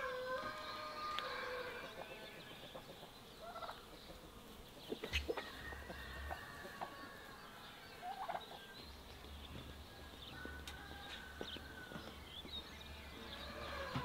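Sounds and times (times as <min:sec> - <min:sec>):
turkey gobbling: 0:02.7 - 0:04.3, 0:04.9 - 0:07.2, 0:08.0 - 0:08.6.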